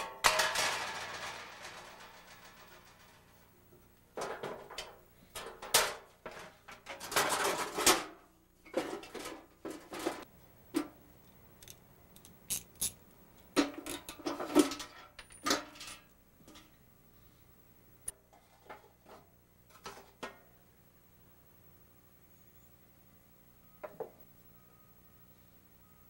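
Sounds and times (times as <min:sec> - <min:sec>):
sheet metal clanking and rattling: 0:00.0 - 0:03.6.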